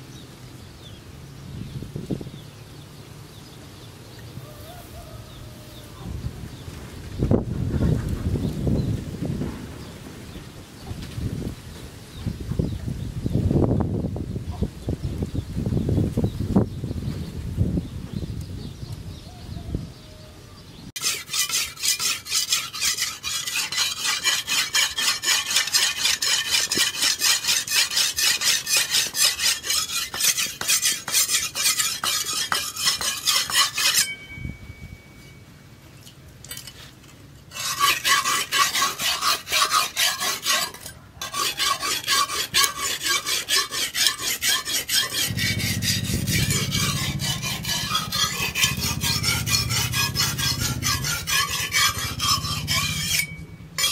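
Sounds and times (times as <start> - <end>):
blade rasping on whetstone: 21.0 - 34.2, 37.5 - 53.9.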